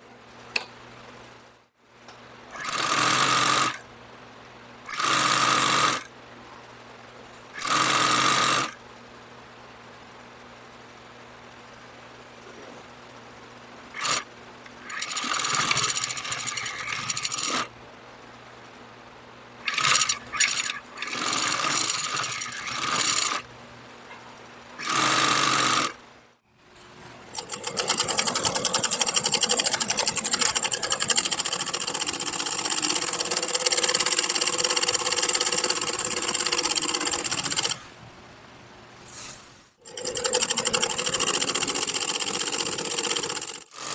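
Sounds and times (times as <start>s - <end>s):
industrial sewing machine stitching: 2.5s - 3.8s, 4.9s - 6.1s, 7.6s - 8.8s, 13.9s - 17.7s, 19.6s - 23.5s, 24.8s - 26.0s, 27.3s - 37.8s, 39.8s - 43.9s.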